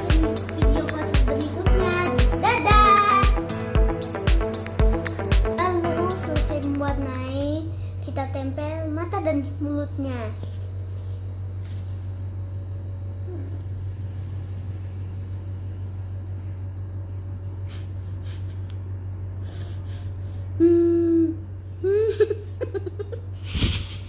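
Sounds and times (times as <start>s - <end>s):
low hum: 0.0s - 24.0s
child laughing: 17.7s - 18.8s, 19.4s - 24.0s
child vocalizing: 20.6s - 22.4s.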